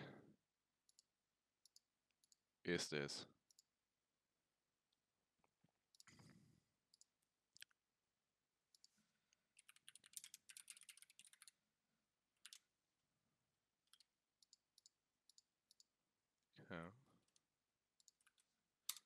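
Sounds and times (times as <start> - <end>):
keyboard typing: 9.5 - 11.6, 12.4 - 12.6.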